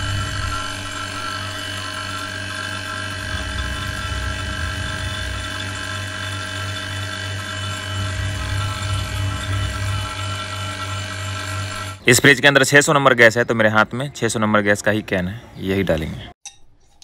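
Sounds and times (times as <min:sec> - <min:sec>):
vacuum pump humming and whining: 0:00.0 - 0:12.3.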